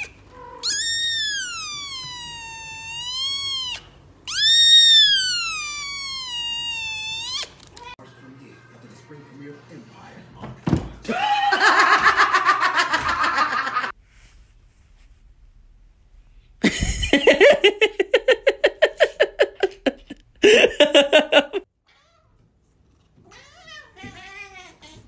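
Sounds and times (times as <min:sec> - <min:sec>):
hearty human laughter: 0:11.1 - 0:13.9, 0:16.6 - 0:21.6.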